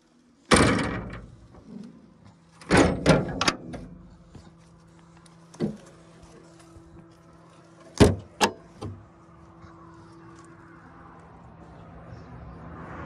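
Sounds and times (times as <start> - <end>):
sheet metal doors banging shut: 0.5 - 1.4, 2.6 - 3.9
metal rattles: 0.5 - 1.9, 2.5 - 4.2.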